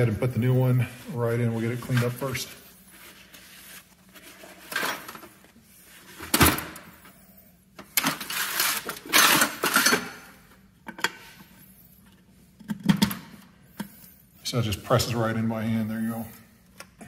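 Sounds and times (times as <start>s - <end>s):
metal parts clattering: 8.0s - 10.2s
metal parts rattling: 8.0s - 10.2s.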